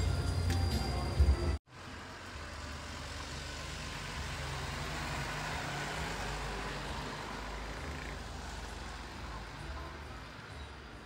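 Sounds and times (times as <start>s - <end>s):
road traffic rushing: 0.0s - 11.0s
vehicle passing: 1.8s - 10.5s.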